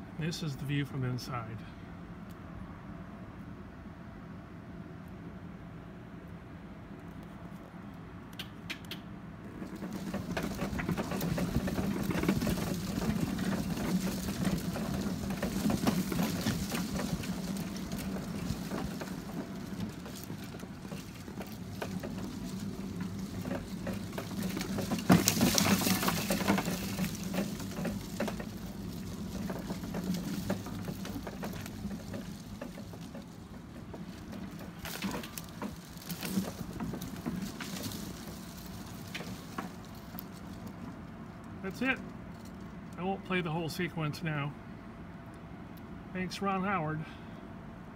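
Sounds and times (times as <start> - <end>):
wheels rolling on pavement: 8.8 - 46.6
electric wheelchair motor hum: 9.5 - 41.6.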